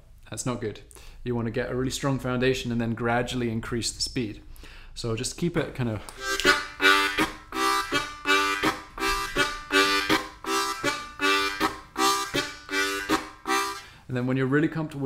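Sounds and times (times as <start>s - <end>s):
harmonica chugging chords: 6.2s - 14.1s.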